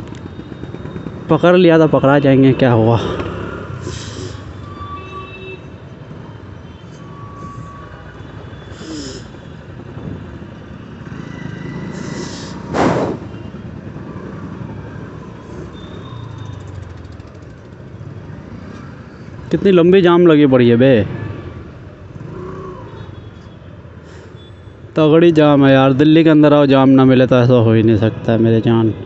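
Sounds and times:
traffic rumble: 0.0 - 29.0
loud burst of hiss: 3.8 - 4.4, 12.0 - 13.3.

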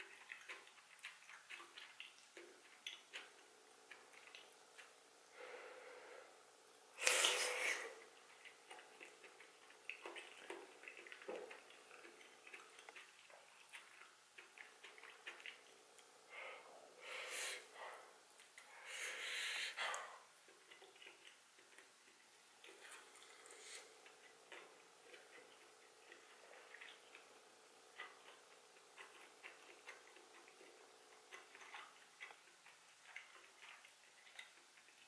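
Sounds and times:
wet chewing clicks: 0.0 - 5.4, 6.5 - 16.6, 19.8 - 35.0
breathing through the nose: 5.3 - 6.3, 7.0 - 8.0, 16.3 - 18.0, 18.7 - 20.2
loud slurp: 7.0 - 8.2.

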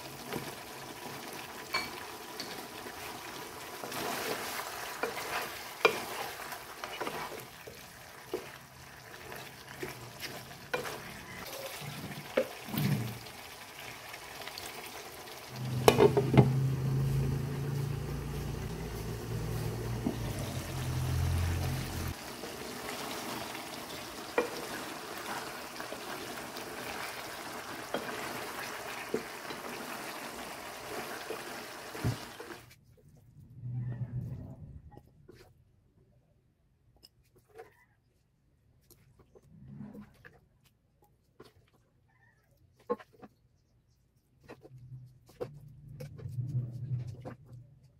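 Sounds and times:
sauce bubbling and sizzling: 0.0 - 32.8
spoon stirring and scraping: 1.7 - 13.9, 15.6 - 31.6, 42.5 - 47.9.

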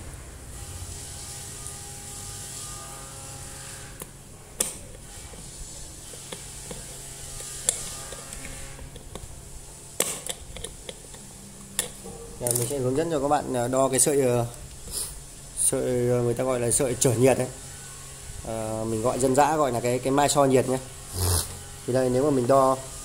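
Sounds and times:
pliers clicking on metal: 7.4 - 9.2.

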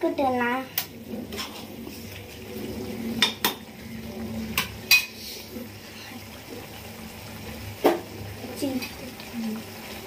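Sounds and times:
spoon stirring in metal pan: 1.3 - 2.0.

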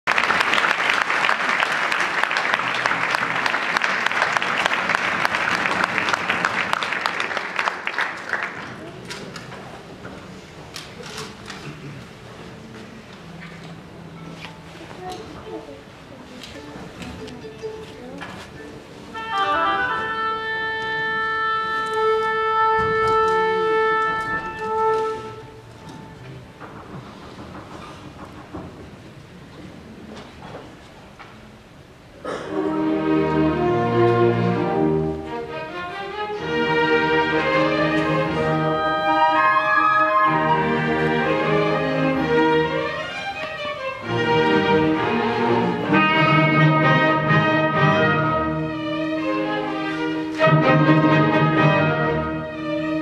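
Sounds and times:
audience applauding: 0.0 - 9.1
low hall murmur: 0.0 - 53.0
wind instrument long note: 19.1 - 25.7, 37.9 - 42.3.

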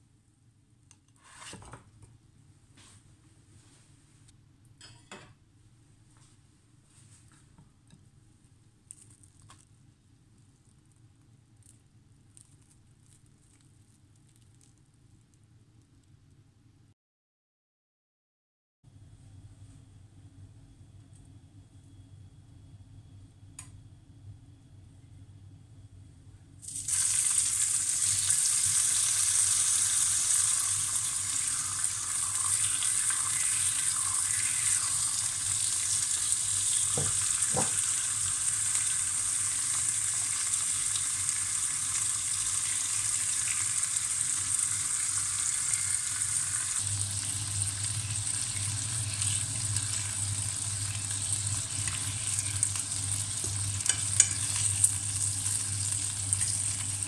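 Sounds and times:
bacon sizzling in frying pan: 26.6 - 57.0.

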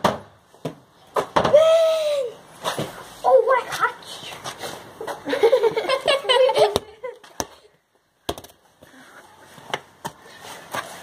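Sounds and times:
children shouting and laughing: 1.5 - 2.4, 5.0 - 7.4.

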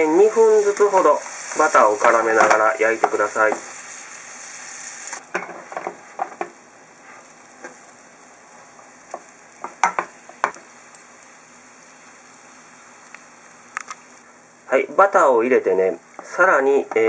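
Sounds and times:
food sizzling in frying pan: 0.0 - 17.0.

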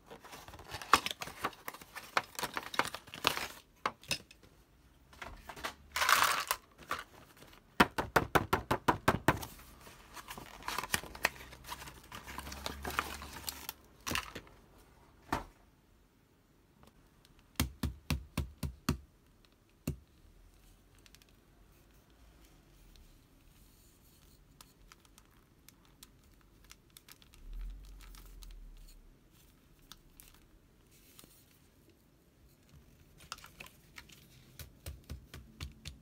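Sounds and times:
packaging rustle: 0.0 - 3.8, 5.4 - 7.6, 9.8 - 14.5
sharp clicks and taps: 34.5 - 36.0.

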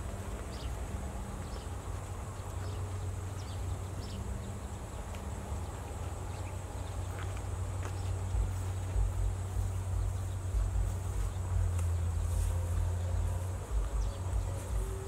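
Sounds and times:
faint high insect drone: 0.0 - 15.0
steady low hum: 0.0 - 15.0.

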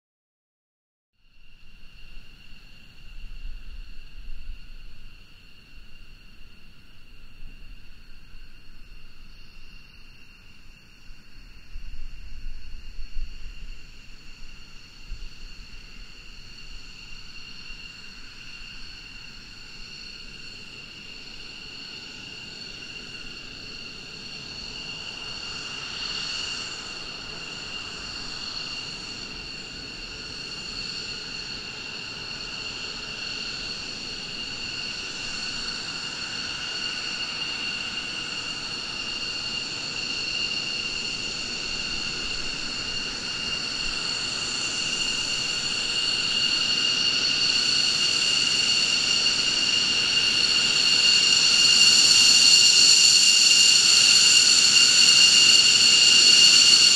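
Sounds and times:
jet engines whining: 17.8 - 56.9.

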